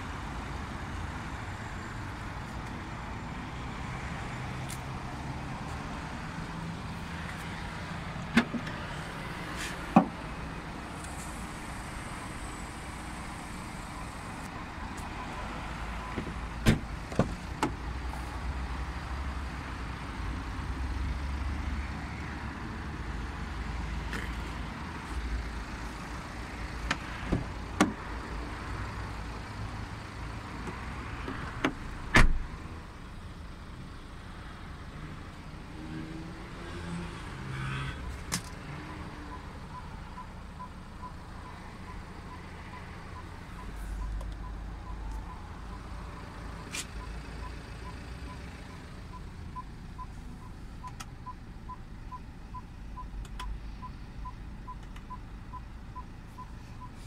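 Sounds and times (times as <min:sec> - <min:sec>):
car door shutting with thump: 0:16.2 - 0:17.8, 0:31.6 - 0:32.4
in-car warning chime beeping: 0:39.3 - 0:46.4, 0:47.0 - 0:57.0.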